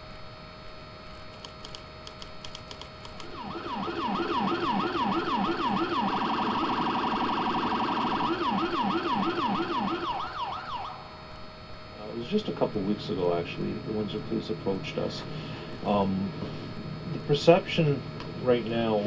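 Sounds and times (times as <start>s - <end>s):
police siren yelping: 3.2s - 11.2s
low-pitched siren sweeps: 3.2s - 13.9s.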